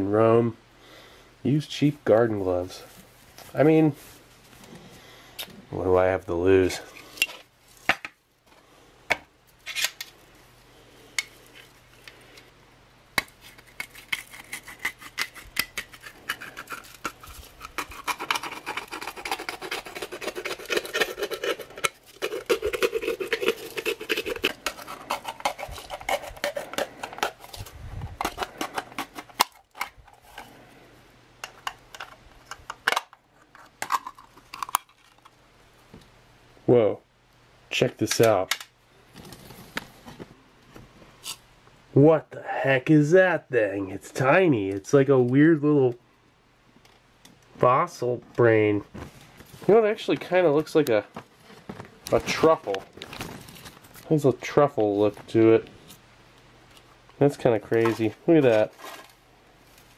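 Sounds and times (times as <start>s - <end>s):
can opener clicking and scraping: 13.8s - 30.5s.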